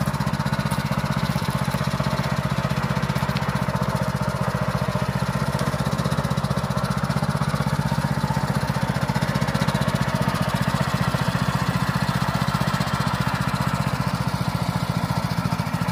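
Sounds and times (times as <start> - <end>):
small tractor engine running: 0.0 - 15.9.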